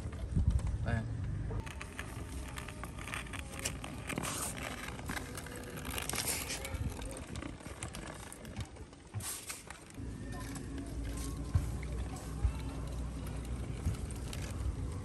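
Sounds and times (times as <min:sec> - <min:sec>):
toy cart wheels rolling on concrete: 0:00.0 - 0:15.0.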